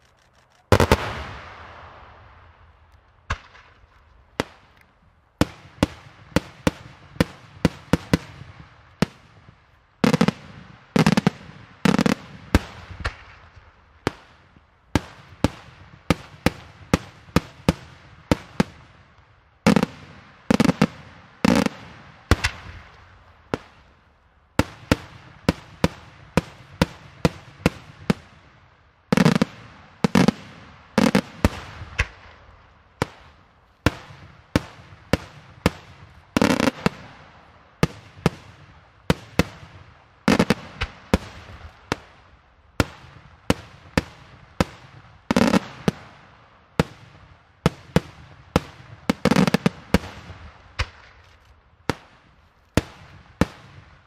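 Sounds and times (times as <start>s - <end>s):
deep firework booms: 0.7s - 4.6s.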